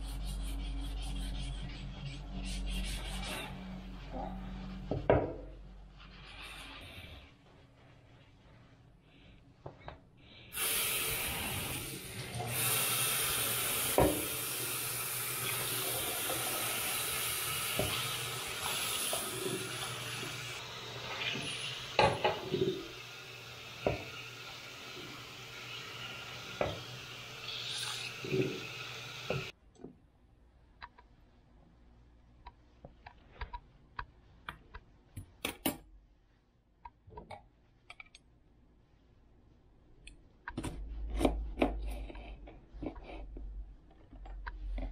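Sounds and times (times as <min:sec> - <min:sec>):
faucet turning on: 0:10.6 - 0:29.5
water running into sink: 0:10.6 - 0:29.5.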